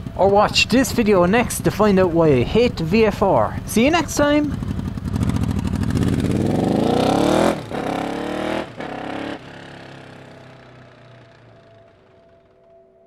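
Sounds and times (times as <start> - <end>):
motorcycle engine revving: 0.0 - 12.4.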